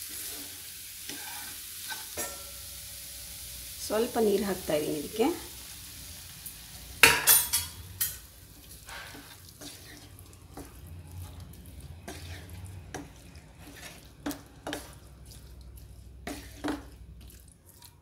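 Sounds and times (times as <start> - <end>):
spatula scraping frying pan: 0.1 - 2.7, 7.0 - 18.0.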